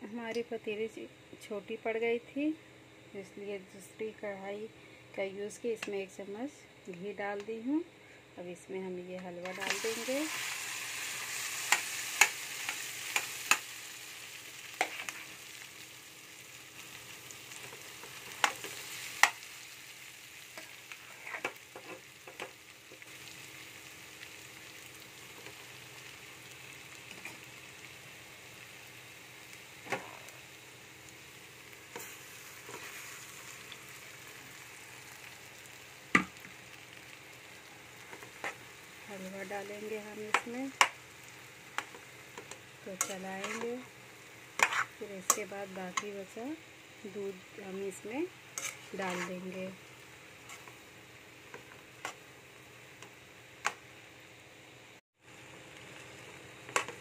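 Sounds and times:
halwa sizzling in ghee: 8.9s - 57.0s
metal spoon scraping a pan: 14.8s - 15.3s, 20.9s - 22.0s, 43.0s - 43.8s, 44.6s - 46.1s, 48.6s - 49.6s, 50.4s - 50.8s.

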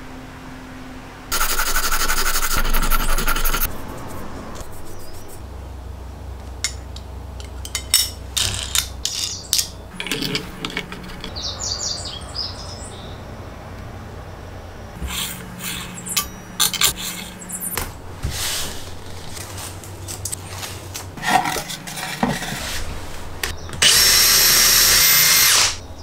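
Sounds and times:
metal scraping on metal: 8.4s - 11.8s, 15.0s - 23.5s.

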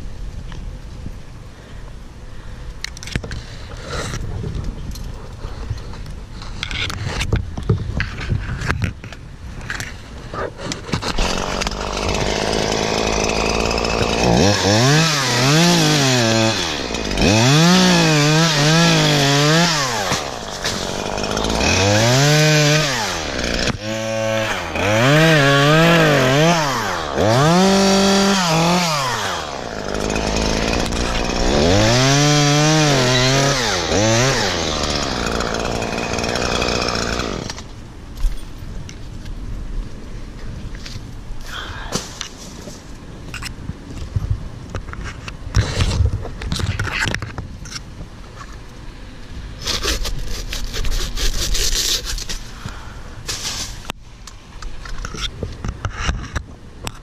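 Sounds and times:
chainsaw revving: 11.0s - 37.7s.

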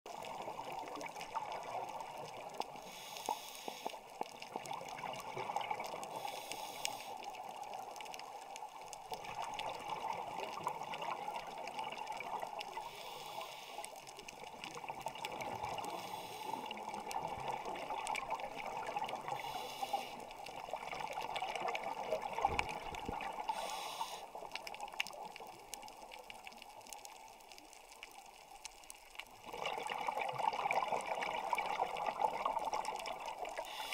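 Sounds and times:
underwater rushing hiss: 2.7s - 4.0s, 6.0s - 7.5s, 12.7s - 14.0s, 15.7s - 16.9s, 19.0s - 20.3s, 23.3s - 24.5s, 33.5s - 33.9s
bursts of hiss: 19.4s - 20.2s, 23.5s - 24.4s.

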